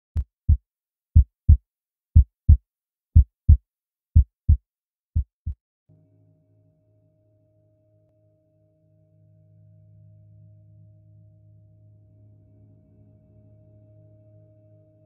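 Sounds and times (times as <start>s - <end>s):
heartbeat double thump: 5.2s - 5.6s.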